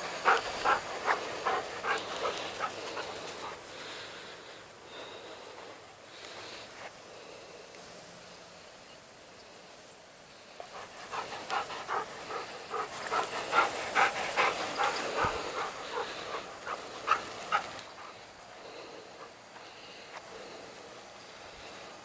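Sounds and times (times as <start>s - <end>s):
dog panting: 0.0s - 6.1s, 10.6s - 20.6s.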